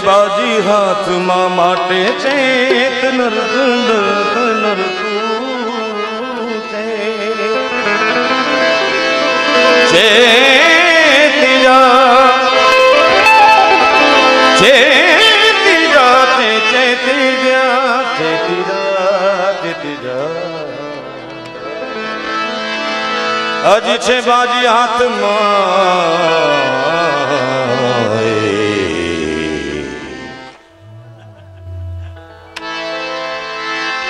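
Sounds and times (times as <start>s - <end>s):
man singing devotional song: 0.0s - 8.4s, 9.7s - 13.0s, 13.9s - 21.3s, 23.5s - 30.7s
harmonium chords: 0.0s - 34.0s.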